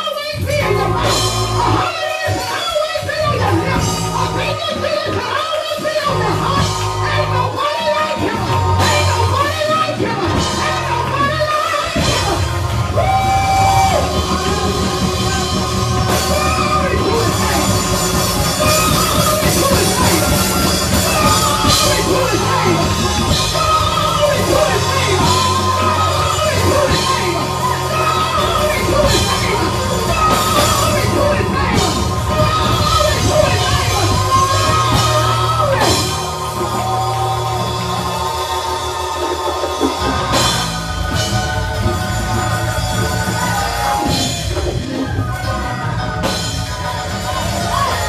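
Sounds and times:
gospel band playing: 0:00.0 - 0:48.0
low bass notes: 0:00.4 - 0:02.0, 0:03.1 - 0:04.9, 0:06.0 - 0:48.0
person singing into a microphone: 0:13.0 - 0:40.6.

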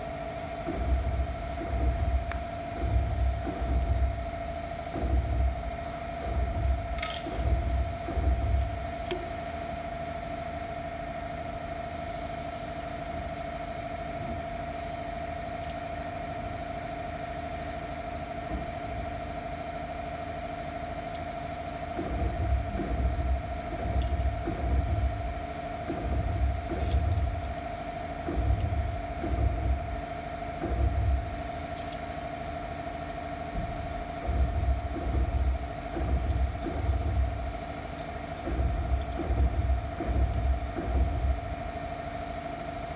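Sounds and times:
low thuds and knocks on metal: 0:00.0 - 0:09.4, 0:21.9 - 0:31.6, 0:33.5 - 0:37.7, 0:38.4 - 0:42.1
background hum: 0:00.0 - 0:42.9
constant whine: 0:00.0 - 0:42.9.

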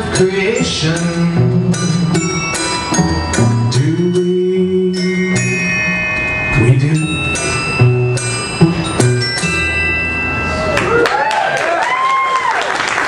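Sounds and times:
held low notes: 0:00.0 - 0:10.8
live band playing: 0:00.0 - 0:11.1
bell-like ringing notes: 0:00.2 - 0:11.5.

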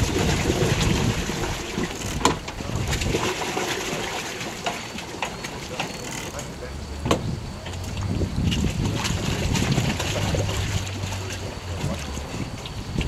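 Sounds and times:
wind buffeting microphone: 0:00.0 - 0:04.7, 0:06.4 - 0:13.0
steady hiss of water: 0:00.0 - 0:13.0
sharp knocks: 0:04.6 - 0:07.3.

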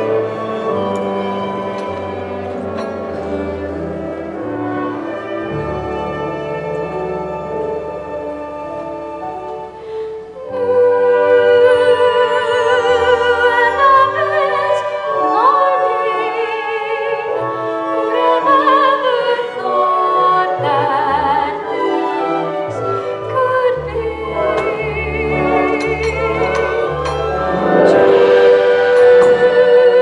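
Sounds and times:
pit orchestra playing: 0:00.0 - 0:30.0
singer holding long notes: 0:10.4 - 0:17.4.

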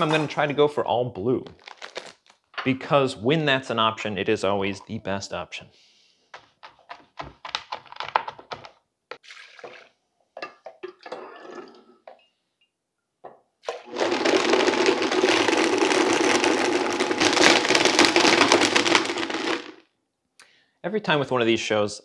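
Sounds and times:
liquid poured into blender jar: 0:09.1 - 0:10.0
blender motor running: 0:13.8 - 0:19.7.

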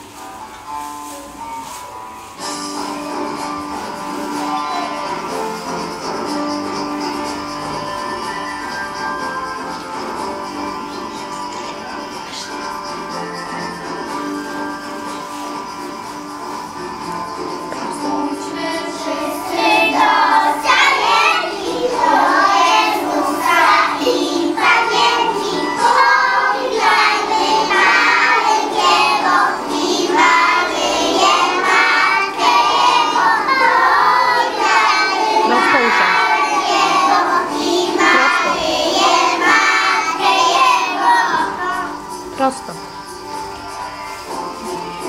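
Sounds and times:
children singing a carol: 0:17.8 - 0:42.1.

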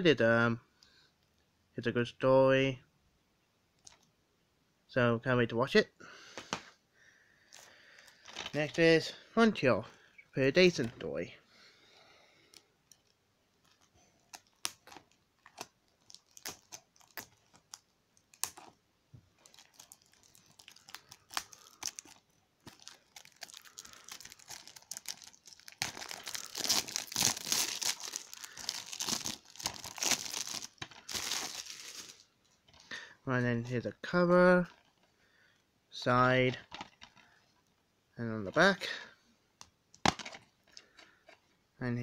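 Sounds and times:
plastic film crinkling and tearing: 0:12.5 - 0:18.8, 0:19.4 - 0:32.4
plastic wrap clicks and scratches: 0:12.5 - 0:18.8, 0:19.4 - 0:32.3.

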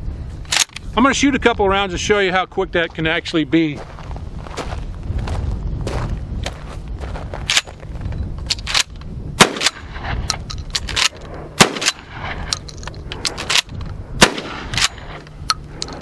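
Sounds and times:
shotgun blasts: 0:09.4 - 0:10.3, 0:10.9 - 0:12.5, 0:13.4 - 0:15.2
shotgun slide clacking: 0:09.6 - 0:16.0.

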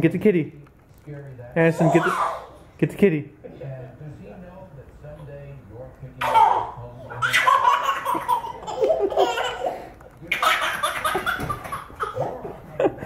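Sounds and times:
toddler laughing: 0:01.8 - 0:02.6, 0:06.2 - 0:12.6.

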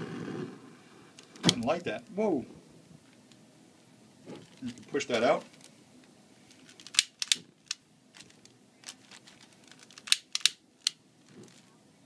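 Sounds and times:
plastic bag crinkling: 0:04.4 - 0:05.8, 0:06.4 - 0:11.7.

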